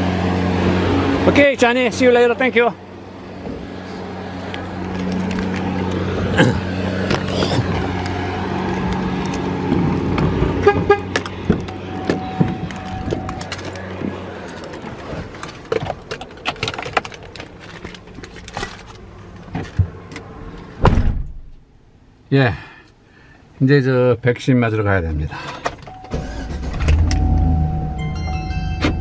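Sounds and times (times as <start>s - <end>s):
heavy thump: 20.8s - 21.5s.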